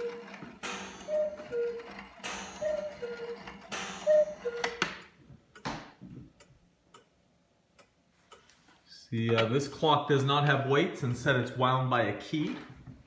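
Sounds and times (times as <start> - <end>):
cuckoo clock call: 0.0 - 5.1
clock mechanism clack: 0.0 - 5.7.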